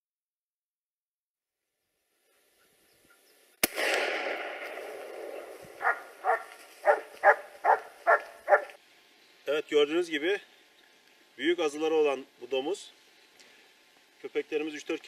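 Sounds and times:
gunshot with echo: 3.6 - 5.9
dog barking: 5.8 - 8.8.

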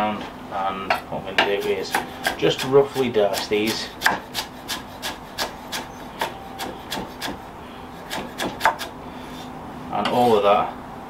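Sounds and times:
knife chopping on wooden board: 1.4 - 7.5, 8.1 - 8.9.

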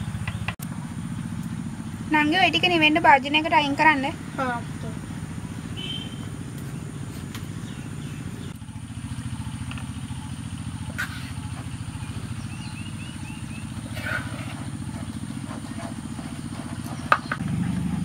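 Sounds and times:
bird chirping: 0.0 - 0.6, 5.6 - 17.4
small engine droning: 0.0 - 18.0.

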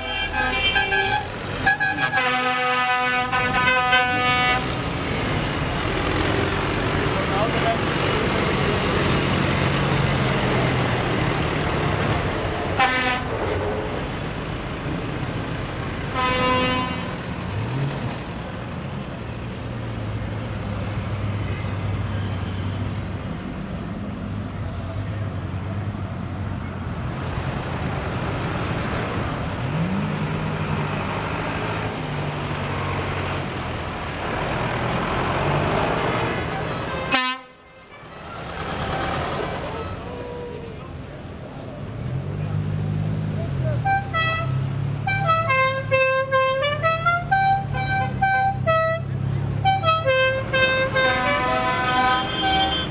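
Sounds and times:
vehicle horn tooting: 0.0 - 4.7, 16.2 - 17.1, 36.8 - 38.1, 49.6 - 52.9
tractor diesel engines running: 0.0 - 52.9.

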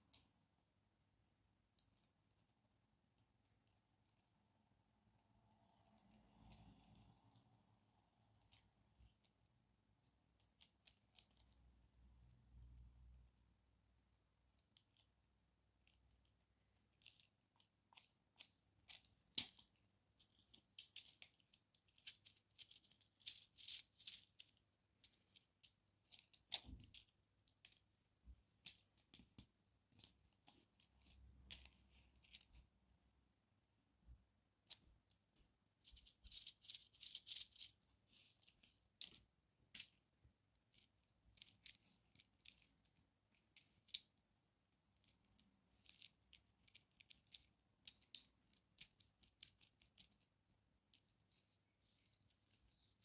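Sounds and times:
plastic parts clicking and rattling: 1.8 - 2.4, 10.3 - 11.6, 14.6 - 27.9, 28.5 - 32.6, 35.8 - 44.3, 44.9 - 50.3.

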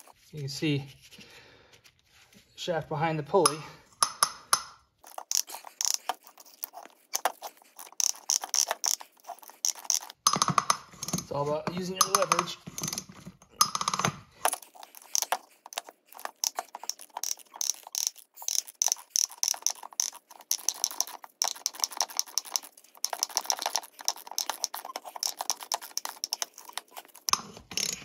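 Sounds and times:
socket ratchet clicking: 3.5 - 6.7, 7.8 - 11.2, 14.8 - 28.0.

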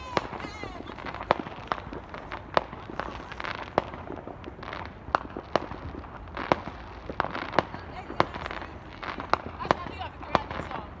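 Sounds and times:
firecrackers banging: 0.0 - 11.0.

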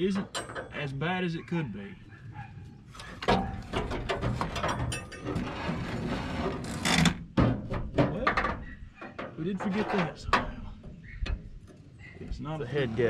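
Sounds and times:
metal scraping and clunking: 0.0 - 1.0, 2.9 - 13.0.

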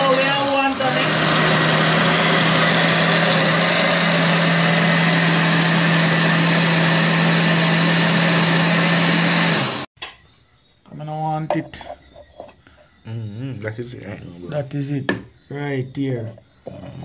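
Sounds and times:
blender motor running: 0.0 - 9.9.

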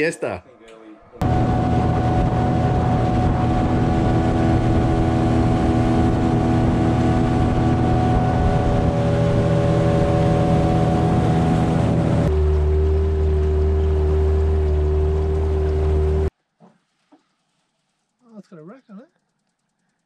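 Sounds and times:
rush of wind and water: 1.2 - 12.5
outboard motor droning: 1.2 - 16.3.

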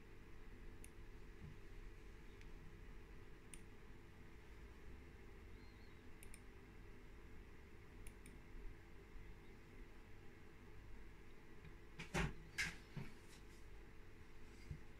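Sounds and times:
faint low hum: 0.0 - 14.9
computer mouse clicks: 3.5 - 3.7, 6.2 - 6.5, 8.0 - 8.4.

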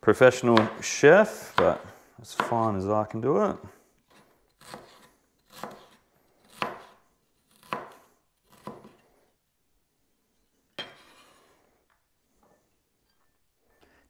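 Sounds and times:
knife chopping on wooden board: 0.5 - 0.8, 1.4 - 2.7, 4.1 - 9.0.

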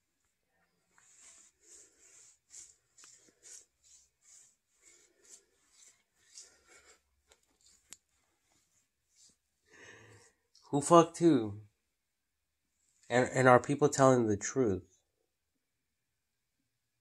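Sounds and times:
hand rubbing beard stubble: 1.0 - 9.5.

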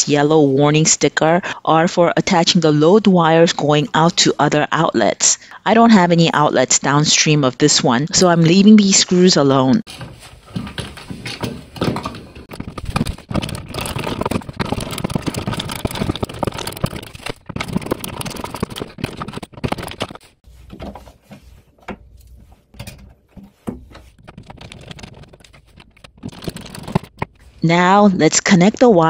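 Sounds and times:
screwdriver scraping and clicking: 12.4 - 20.2.

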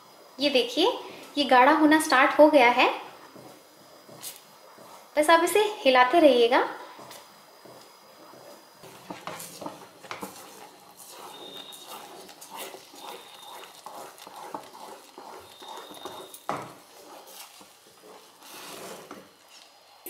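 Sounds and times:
spatula scraping and knocking pan: 3.2 - 5.6, 6.9 - 19.6.

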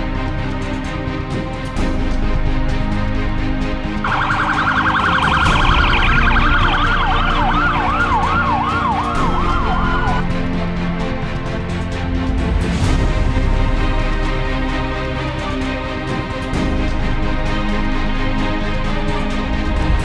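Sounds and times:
background music: 0.0 - 20.0
electronic vehicle siren: 4.0 - 10.3.

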